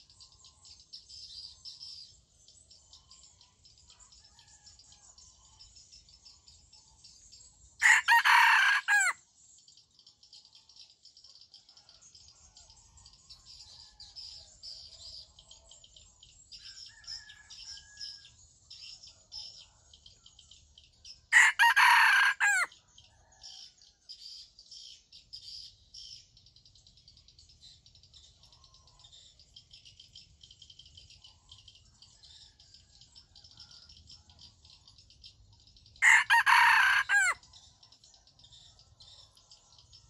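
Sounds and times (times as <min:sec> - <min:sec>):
rooster crowing: 0:07.8 - 0:09.2, 0:21.3 - 0:22.7, 0:36.0 - 0:37.4.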